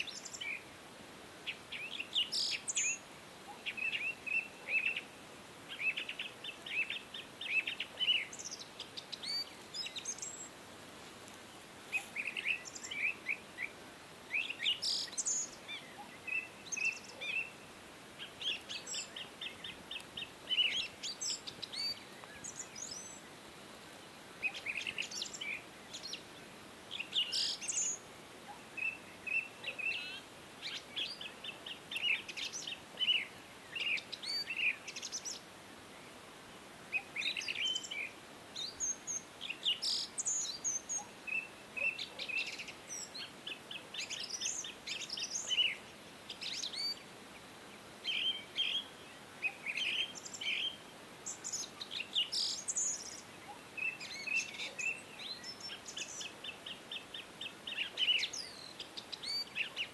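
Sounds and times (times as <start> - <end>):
birds chirping and singing: 5.8 - 10.6, 18.2 - 23.2.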